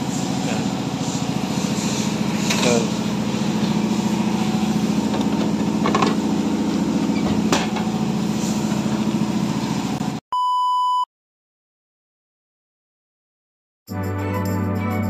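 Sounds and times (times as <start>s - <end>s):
motor hum: 0.0s - 10.2s
test-tone beep: 10.4s - 11.1s.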